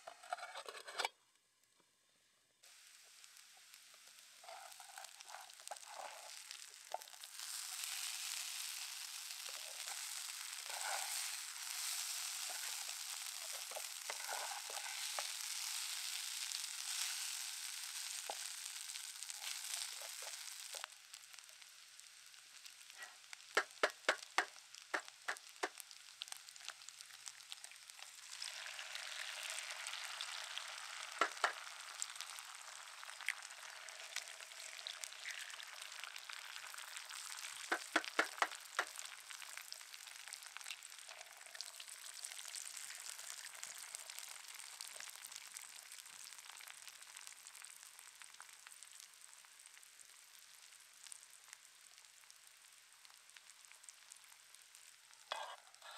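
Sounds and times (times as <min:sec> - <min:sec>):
potatoes sizzling in a pan: 0:02.6 - 0:55.9
sharp taps or clicks: 0:23.6 - 0:25.7, 0:31.2 - 0:31.6, 0:37.7 - 0:38.9.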